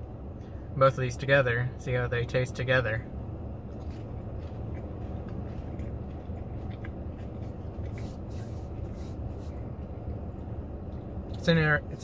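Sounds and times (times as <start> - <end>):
car cabin rumble: 0.0 - 12.0
person chewing food: 3.6 - 11.2.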